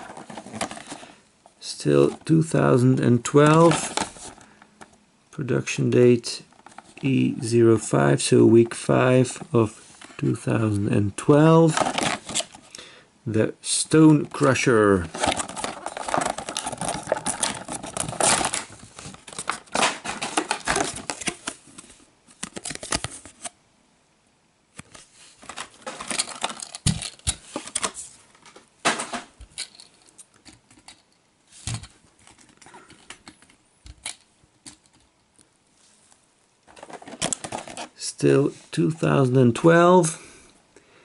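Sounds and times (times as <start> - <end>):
plastic packaging crinkling: 0.0 - 1.2, 11.6 - 12.7, 14.3 - 21.7, 24.9 - 28.0, 36.6 - 38.0.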